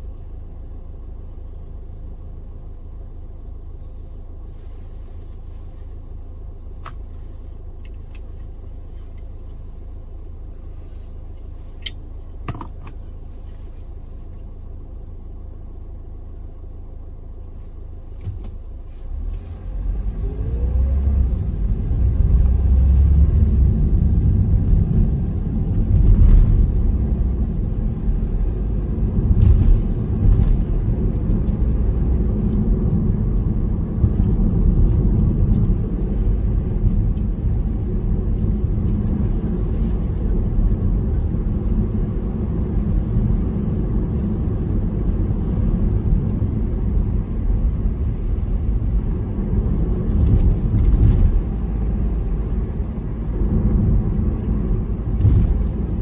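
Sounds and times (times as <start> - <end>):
car engine and tyre rumble: 0.0 - 56.0
rising engine note: 19.3 - 25.4.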